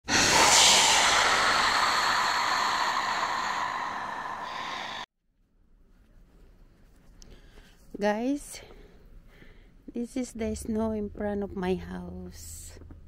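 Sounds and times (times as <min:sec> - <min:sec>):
whooshing rush of noise: 0:00.0 - 0:05.1.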